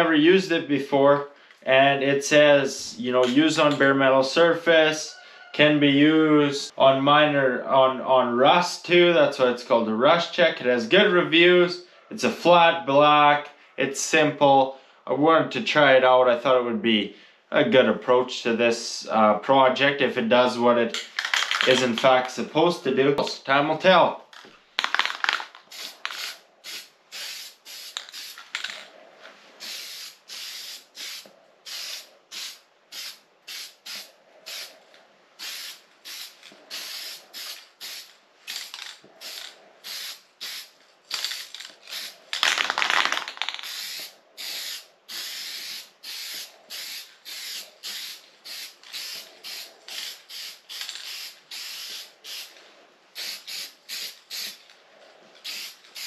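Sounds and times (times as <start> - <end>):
spray can hissing: 24.9 - 28.6, 29.6 - 34.7, 35.4 - 52.5, 53.2 - 54.6, 55.4 - 56.0.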